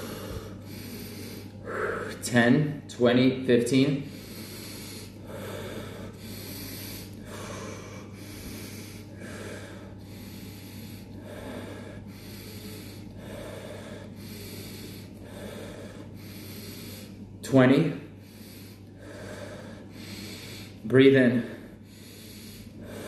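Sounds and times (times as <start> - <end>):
man breathing deeply: 0.0 - 2.8, 4.0 - 23.0.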